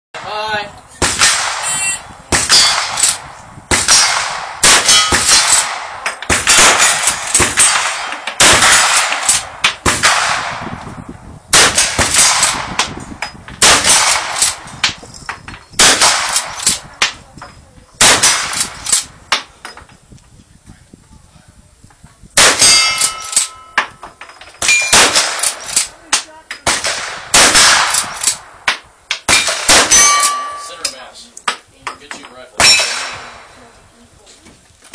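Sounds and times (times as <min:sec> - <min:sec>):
rifle shots: 0:01.0 - 0:10.8, 0:11.5 - 0:13.0, 0:13.6 - 0:15.0, 0:15.8 - 0:17.2, 0:18.0 - 0:19.2, 0:22.4 - 0:23.6, 0:24.6 - 0:30.6, 0:32.6 - 0:33.5
steel targets clanging: 0:01.2 - 0:03.2, 0:03.8 - 0:09.8, 0:22.4 - 0:26.8, 0:29.1 - 0:31.3, 0:31.9 - 0:33.3.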